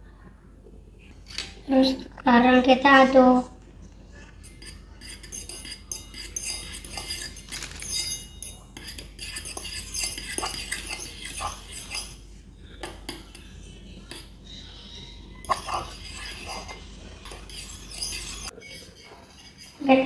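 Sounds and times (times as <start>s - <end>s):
utensil clinking against bowl: 4.4s - 12.2s, 15.5s - 20.0s.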